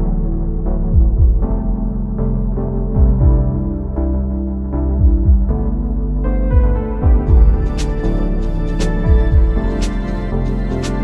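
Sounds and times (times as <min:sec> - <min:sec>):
sustained chords over slow beat: 0:00.0 - 0:11.0
kick drum thuds: 0:00.9 - 0:01.6, 0:03.0 - 0:03.6, 0:05.0 - 0:05.6, 0:06.5 - 0:07.9, 0:09.1 - 0:09.8.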